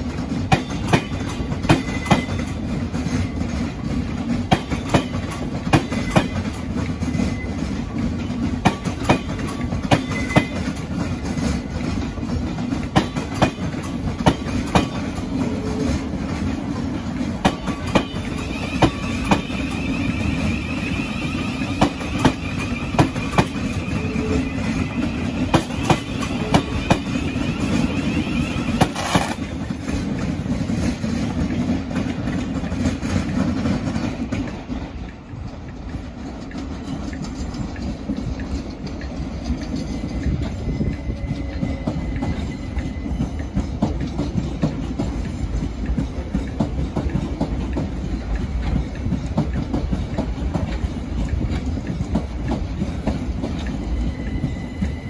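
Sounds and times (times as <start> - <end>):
electric train rumble: 0.0 - 55.0
train wheels clacking over rail joints: 0.0 - 55.0.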